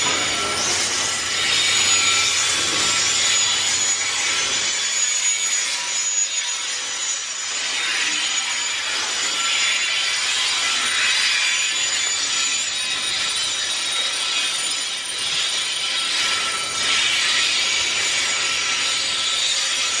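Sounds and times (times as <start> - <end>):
train wheels squealing on rails: 0.0 - 20.0.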